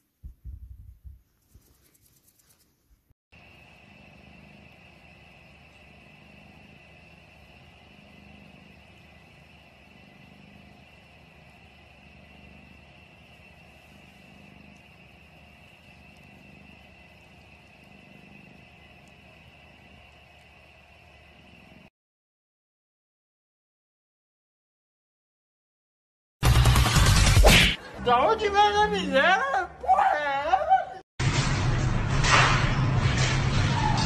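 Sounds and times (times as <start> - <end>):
cat purring: 3.7 - 21.9.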